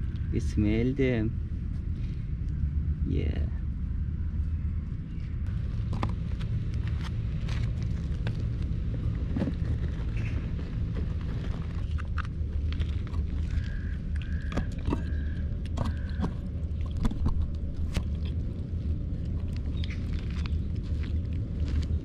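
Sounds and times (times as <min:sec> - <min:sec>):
steady low rumble: 0:00.0 - 0:22.0
kitten chewing and lapping: 0:05.9 - 0:22.0.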